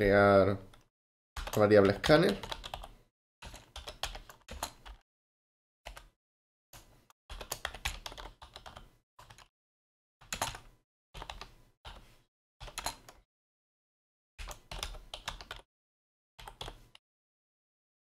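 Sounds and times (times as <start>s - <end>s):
computer keyboard typing: 1.4s - 5.0s, 5.9s - 6.2s, 6.8s - 9.5s, 10.2s - 12.0s, 12.6s - 13.2s, 14.4s - 15.7s, 16.4s - 17.0s.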